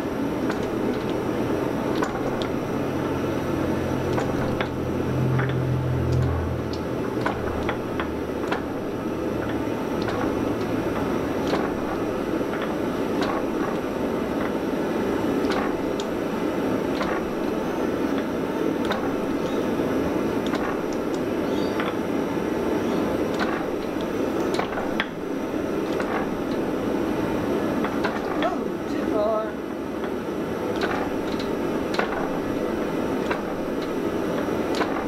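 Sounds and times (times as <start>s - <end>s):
forging press mechanical rumble: 0.0s - 35.0s
low hum: 2.6s - 11.0s.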